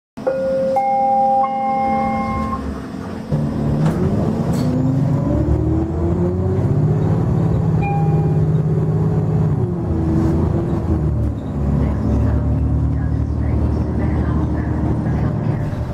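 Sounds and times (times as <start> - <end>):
bus engine accelerating: 0.2 - 15.9
chime tone: 0.3 - 2.6, 7.8 - 8.4.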